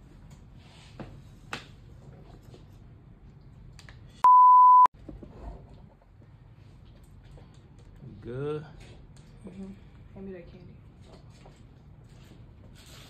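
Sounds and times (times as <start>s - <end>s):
high pure-tone censor bleep: 4.2s - 4.9s.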